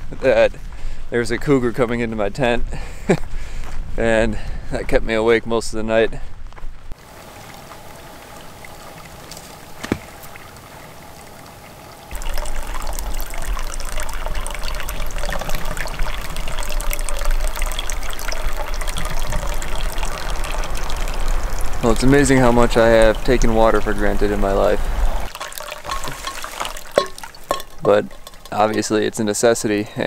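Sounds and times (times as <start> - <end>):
water trickling into metal tank: 7.0 - 24.6, 25.2 - 29.7.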